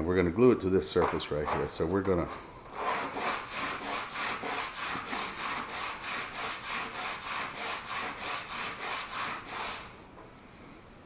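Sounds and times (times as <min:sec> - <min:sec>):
plastic rasping on sanding belt: 0:01.5 - 0:09.9.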